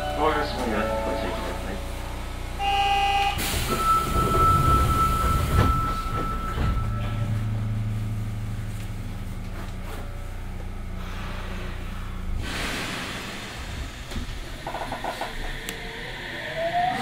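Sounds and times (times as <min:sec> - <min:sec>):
low hum of train equipment: 0:00.0 - 0:17.0.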